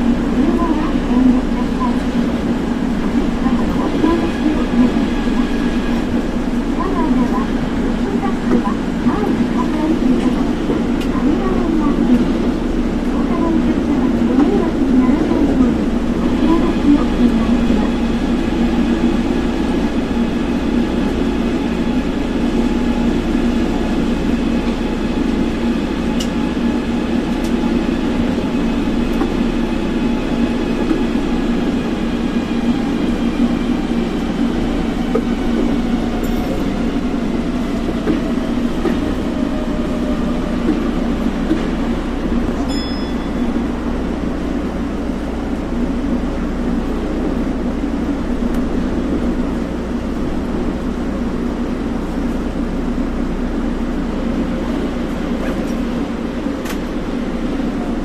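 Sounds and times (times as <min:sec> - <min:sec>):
monorail train running rumble: 0:00.0 - 0:58.0.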